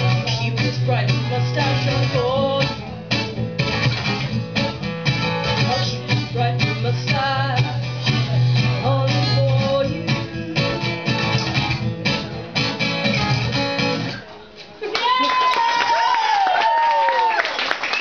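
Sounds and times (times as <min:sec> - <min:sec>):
acoustic guitar strumming: 0:00.0 - 0:14.3.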